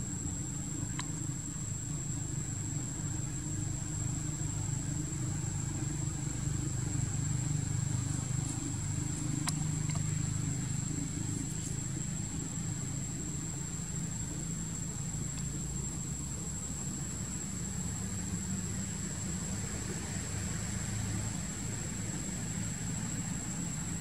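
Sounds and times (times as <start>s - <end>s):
vehicle engine humming: 0.0s - 24.0s
faint clicks: 0.7s - 1.5s, 8.0s - 12.6s.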